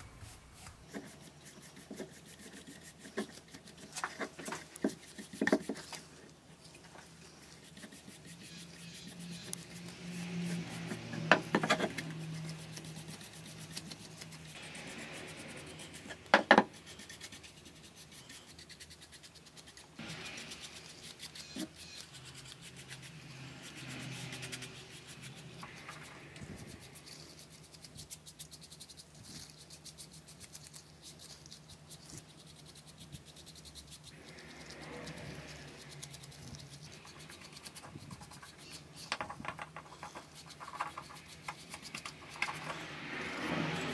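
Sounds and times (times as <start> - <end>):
paintbrush swishing on wood: 0.0 - 29.6
sharp knocks: 16.3 - 16.8.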